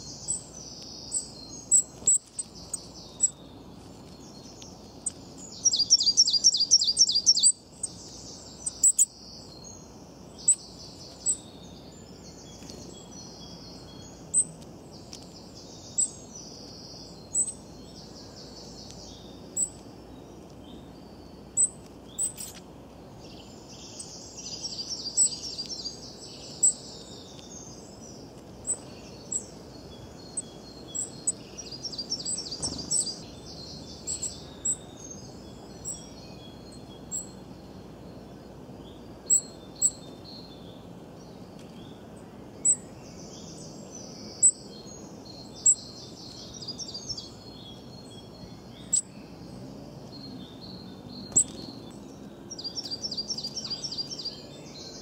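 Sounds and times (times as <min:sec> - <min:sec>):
bird trill: 0:00.0 - 0:03.5, 0:04.3 - 0:09.8, 0:15.7 - 0:19.8, 0:23.4 - 0:27.9, 0:28.6 - 0:37.4, 0:39.2 - 0:40.5
songbirds chirping: 0:00.0 - 0:55.0.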